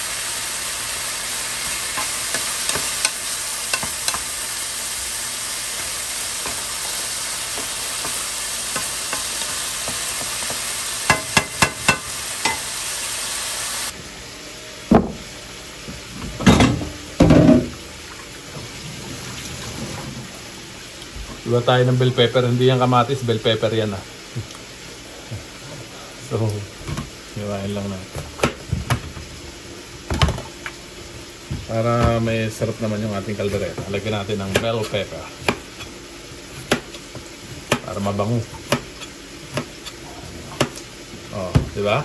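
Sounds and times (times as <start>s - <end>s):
chicken sizzling in a pan: 0.0s - 42.0s
knocks at kitchen sink: 14.9s - 15.2s.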